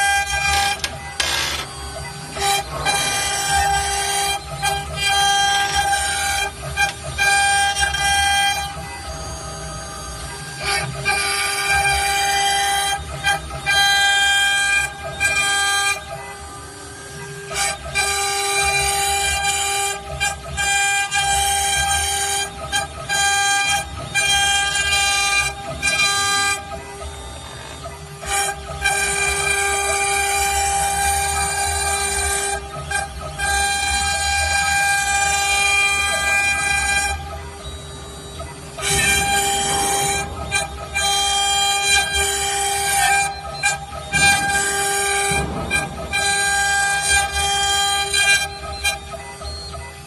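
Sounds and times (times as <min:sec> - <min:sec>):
router spindle low rumble: 0:00.0 - 0:13.0, 0:23.6 - 0:49.7
high whining cutter tones: 0:00.0 - 0:50.0.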